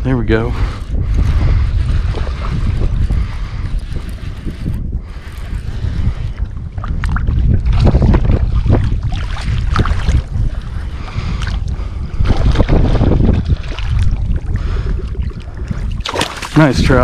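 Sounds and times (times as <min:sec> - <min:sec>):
wind rumbling on microphone: 0:00.0 - 0:17.0
water lapping and splashing: 0:00.3 - 0:17.0
fish thrashing at surface: 0:15.8 - 0:17.0.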